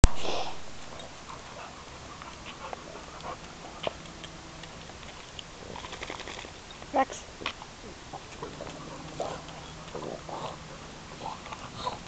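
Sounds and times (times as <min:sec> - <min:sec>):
claws ticking on concrete: 0:02.2 - 0:07.6
dog sound: 0:08.1 - 0:12.0.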